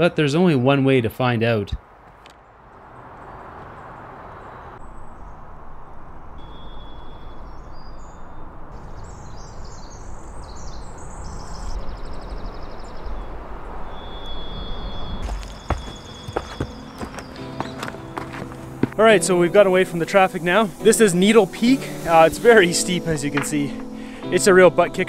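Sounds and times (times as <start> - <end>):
songbirds chirping: 0.0 - 25.0
distant highway traffic: 1.4 - 24.4
high bird whistles: 6.4 - 8.4, 13.8 - 17.9.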